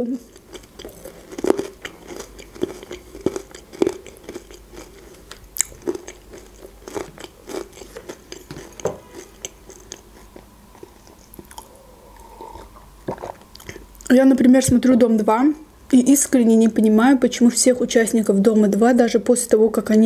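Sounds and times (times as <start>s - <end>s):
person chewing: 0.2s - 14.1s
person drinking: 10.8s - 14.0s.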